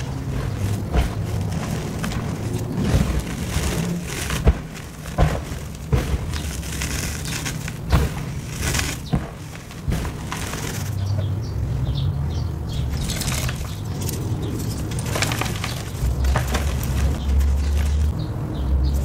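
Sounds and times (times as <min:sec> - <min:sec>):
rustle of falling powder: 0:00.0 - 0:11.0
sharp crunches in powder: 0:00.0 - 0:11.1.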